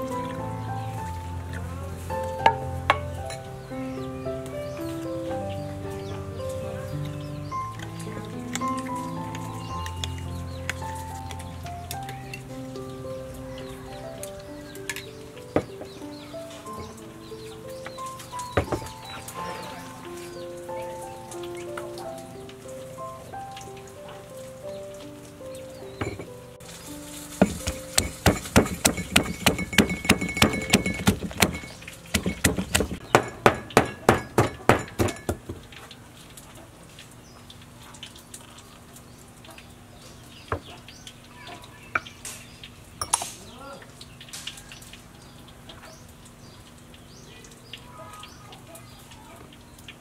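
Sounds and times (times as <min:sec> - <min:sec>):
pestle pounding in a mortar: 0:27.4 - 0:35.6.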